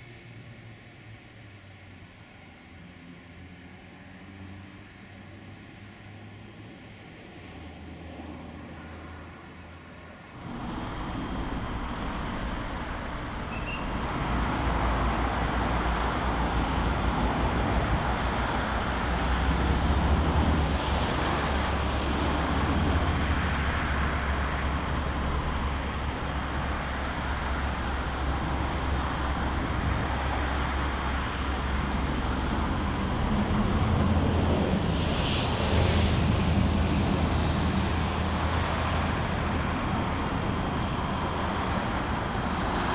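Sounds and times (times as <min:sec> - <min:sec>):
trains rumbling: 0:10.4 - 0:42.9.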